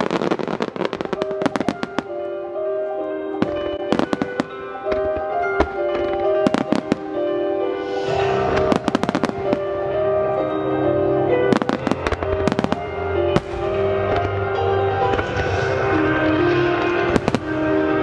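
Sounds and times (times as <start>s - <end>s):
fireworks hissing crackle: 0.0s - 2.2s, 3.9s - 10.2s, 15.0s - 18.0s
fireworks bursting bangs: 0.0s - 2.4s, 3.3s - 18.0s
music of held notes: 0.0s - 18.0s.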